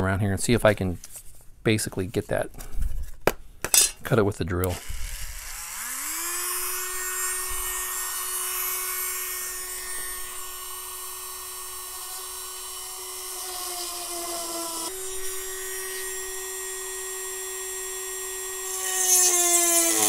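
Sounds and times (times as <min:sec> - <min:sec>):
rotary tool drilling aluminium: 0:04.6 - 0:20.0.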